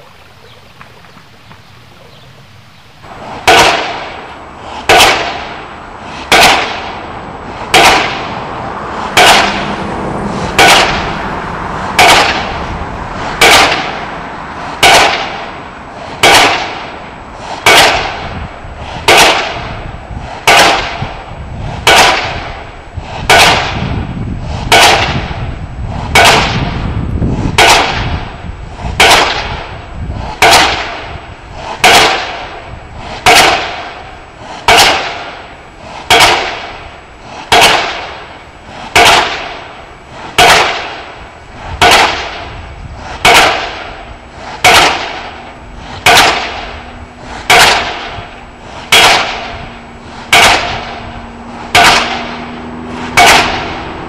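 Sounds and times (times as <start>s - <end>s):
pile driver hammer striking: 3.4s - 4.2s, 4.8s - 5.5s, 6.3s - 6.9s, 7.7s - 8.3s, 9.1s - 9.7s, 10.5s - 11.1s, 11.9s - 12.6s, 13.4s - 14.0s, 14.8s - 15.4s, 16.2s - 16.9s, 17.6s - 18.4s, 19.0s - 19.7s, 20.4s - 21.1s, 21.8s - 22.5s, 23.3s - 24.0s, 24.7s - 25.4s, 26.1s - 26.7s, 27.6s - 28.2s, 29.0s - 29.6s, 30.4s - 31.2s, 31.8s - 32.6s, 33.2s - 34.0s, 34.6s - 35.4s, 36.0s - 36.9s, 37.5s - 38.3s, 38.9s - 39.8s, 40.4s - 41.1s, 41.8s - 42.6s, 43.2s - 44.0s, 44.6s - 46.8s, 47.4s - 51.1s, 51.7s - 54.0s
low rumble: 32.3s - 54.0s.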